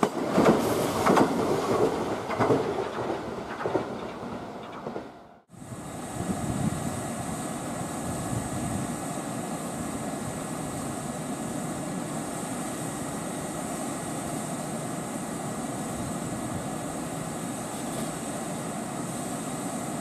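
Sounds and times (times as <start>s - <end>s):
electric train drone: 5.5s - 20.0s.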